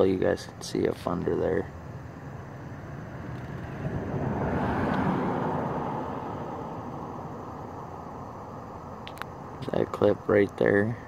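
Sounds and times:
vehicle passing by: 2.0s - 8.4s.

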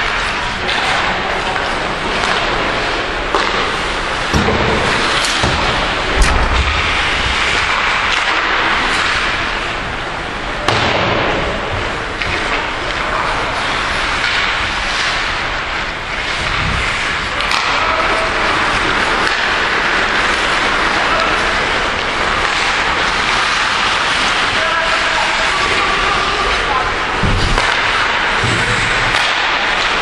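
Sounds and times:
skates scraping on ice: 0.0s - 9.8s, 11.3s - 30.0s
sharp knocks of stick or puck: 3.3s - 9.4s, 14.2s - 15.4s, 17.4s - 18.2s, 27.2s - 30.0s.

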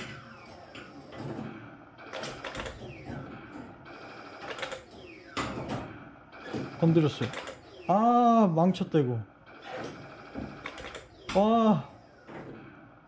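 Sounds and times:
claw machine motors whirring: 0.0s - 13.0s
short falling whines: 9.7s - 13.0s.

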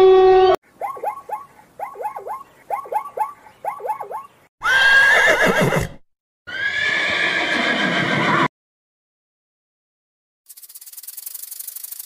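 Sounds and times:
zebra barking calls: 0.7s - 4.8s
zebra whinnies: 3.7s - 8.5s.

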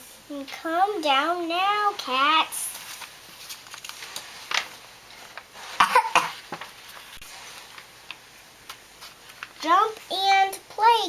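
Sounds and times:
book page turning: 2.7s - 5.8s, 6.4s - 10.1s
person coughing: 5.8s - 6.4s.

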